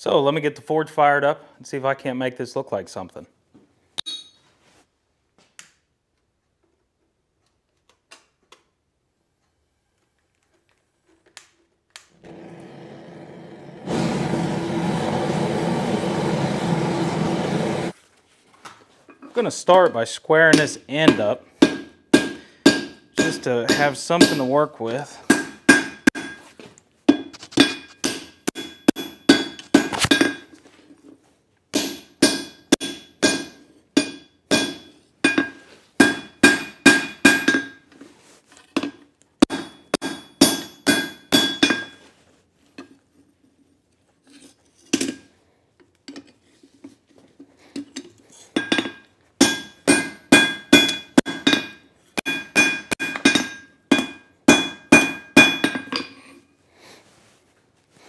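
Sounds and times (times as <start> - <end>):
anvil ringing: 4.0 - 4.4, 20.5 - 24.6, 25.3 - 26.4, 31.8 - 37.8, 39.4 - 42.0, 48.6 - 56.1
hammer striking hot steel on anvil: 20.5 - 24.6, 25.3 - 26.4, 27.1 - 30.5, 31.8 - 37.8, 39.4 - 42.0, 48.6 - 56.1.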